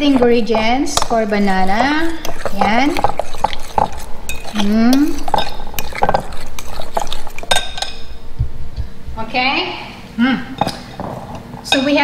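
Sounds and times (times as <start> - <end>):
fork stirring batter in glass bowl: 0.0 - 8.1.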